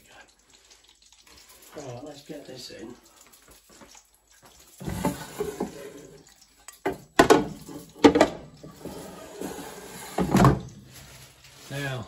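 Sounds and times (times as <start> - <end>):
air fryer basket scraping: 8.2 - 11.8.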